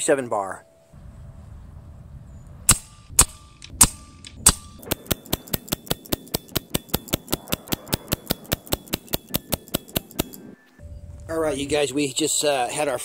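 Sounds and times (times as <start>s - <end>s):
air rifle shots cracking: 2.7s - 10.6s.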